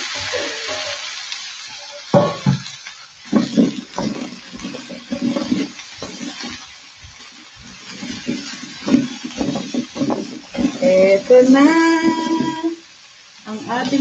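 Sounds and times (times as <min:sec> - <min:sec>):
spatula scraping in a pan: 0:01.8 - 0:14.0
knock: 0:02.2 - 0:02.6.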